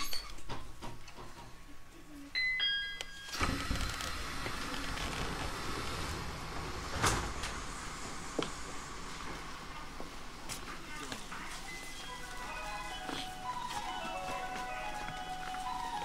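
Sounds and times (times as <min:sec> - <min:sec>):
train door chime: 0:02.4 - 0:04.0, 0:11.5 - 0:16.0.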